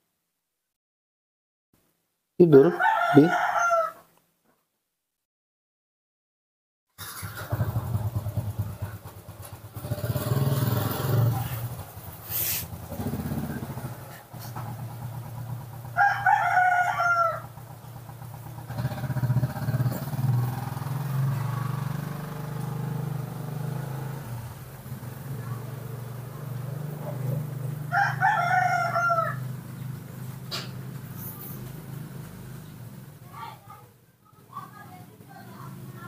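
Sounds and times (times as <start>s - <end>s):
drawn-out crowing call: 2.5s - 4.1s, 14.6s - 25.0s, 26.4s - 30.2s
passing traffic engine rumble: 7.2s - 36.0s.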